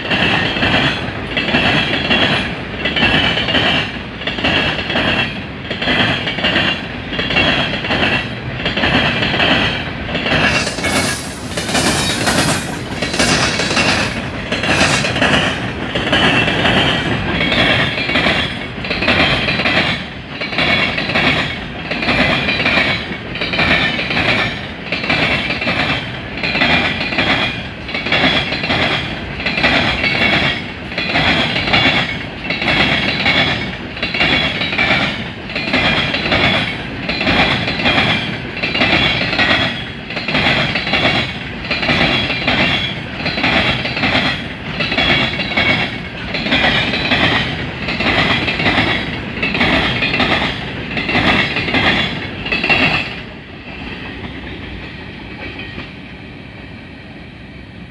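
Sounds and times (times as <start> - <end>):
train wheels clacking on rail joints: 0.0 - 56.2
high metallic wheel whine: 10.2 - 15.6.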